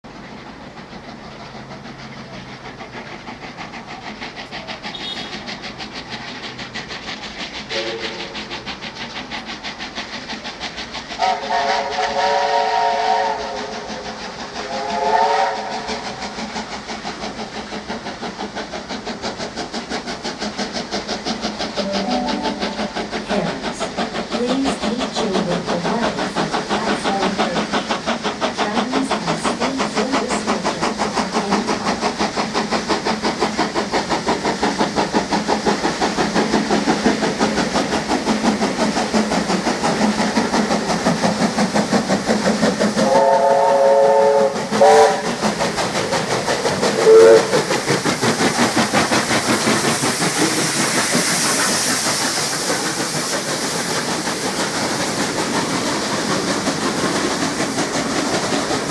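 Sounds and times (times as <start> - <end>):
steam locomotive exhaust beats: 0.0 - 58.9
hissing steam: 0.1 - 58.9
steam whistle blasts: 4.9 - 5.5, 7.7 - 8.4, 11.2 - 13.9, 14.6 - 16.0, 21.8 - 23.0, 43.0 - 45.4, 47.0 - 47.6.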